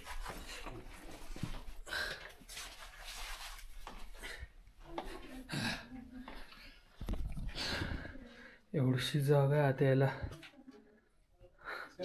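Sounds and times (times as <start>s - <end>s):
person breathing hard: 7.4s - 8.7s.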